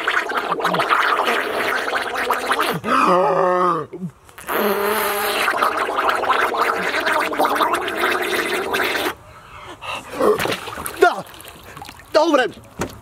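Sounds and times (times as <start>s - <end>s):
man blowing bubbles in water: 0.0s - 3.7s, 4.4s - 9.2s.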